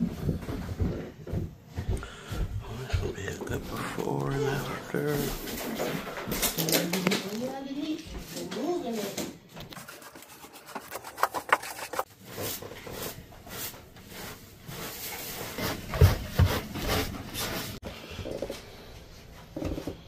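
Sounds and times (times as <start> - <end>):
broom sweeping carpet: 9.8 - 17.8.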